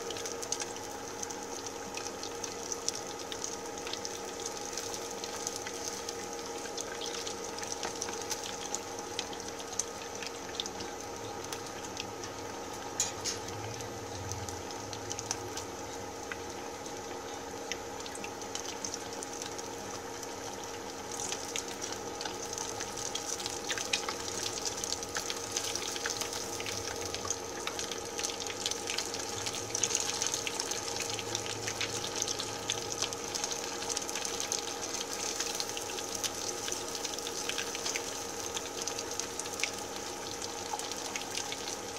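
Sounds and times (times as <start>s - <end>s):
faint steady hum: 0.0s - 41.9s
food sizzling in hot oil: 0.0s - 41.9s
oil crackling and popping: 0.0s - 41.9s.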